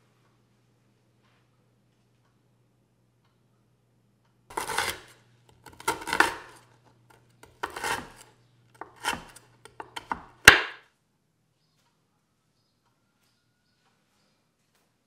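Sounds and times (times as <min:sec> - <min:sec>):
knife chopping crunchy cookies: 0:04.5 - 0:10.8.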